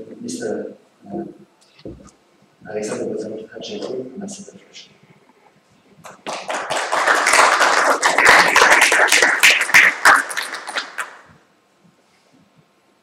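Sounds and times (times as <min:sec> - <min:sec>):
audience applauding: 0:06.1 - 0:11.3.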